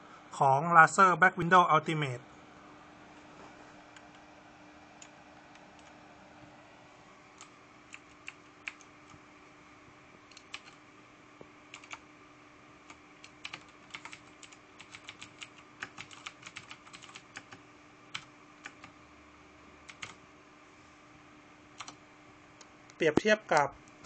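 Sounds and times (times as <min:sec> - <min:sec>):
mechanical keyboard typing: 0:10.3 - 0:10.8, 0:11.7 - 0:12.0, 0:12.9 - 0:19.0, 0:19.9 - 0:20.2, 0:21.8 - 0:22.0.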